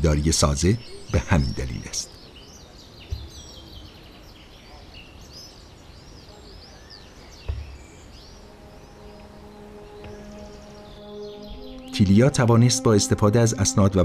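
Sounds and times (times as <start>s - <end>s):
faint outdoor hiss: 0.0s - 14.0s
small birds chirping: 0.0s - 14.0s
low thumps: 8.4s - 12.5s.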